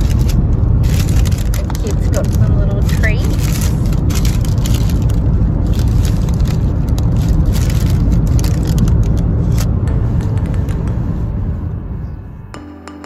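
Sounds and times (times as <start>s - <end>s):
paper bags crinkling: 0.0s - 9.7s
road rumble inside a car: 0.0s - 12.5s.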